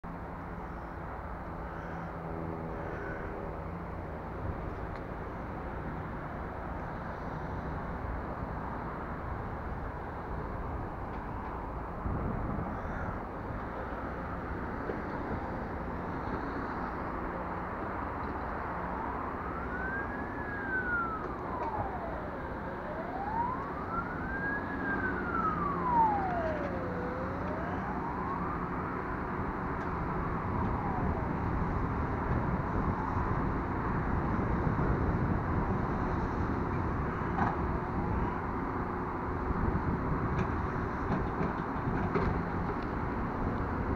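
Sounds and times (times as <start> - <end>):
outdoor background noise: 0.0 - 43.9
siren wailing: 18.5 - 34.6.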